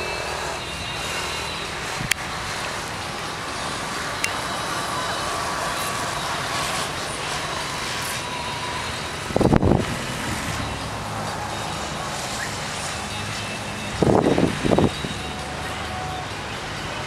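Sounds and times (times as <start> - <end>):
outdoor background rumble: 0.0 - 17.0
wind buffeting microphone: 6.4 - 15.4.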